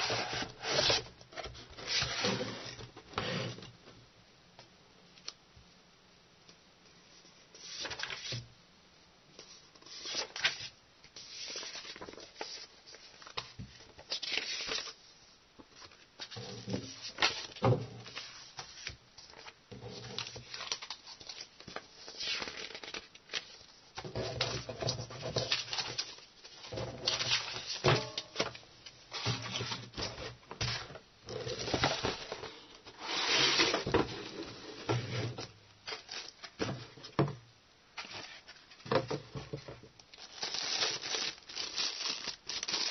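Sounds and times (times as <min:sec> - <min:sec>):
paper rustling and flapping: 0:07.7 - 0:08.4, 0:09.8 - 0:15.0, 0:15.7 - 0:28.5.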